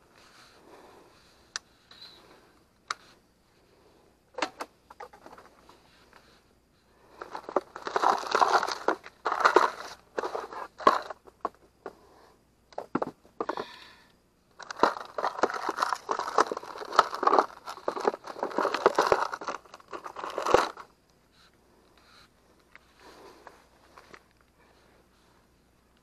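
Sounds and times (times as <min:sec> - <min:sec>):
plastic bags crinkling: 0:07.1 - 0:11.2, 0:14.6 - 0:20.9.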